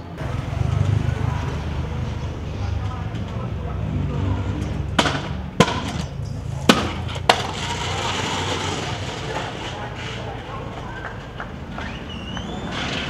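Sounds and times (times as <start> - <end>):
scooter clacking on hard ground: 4.6 - 13.0.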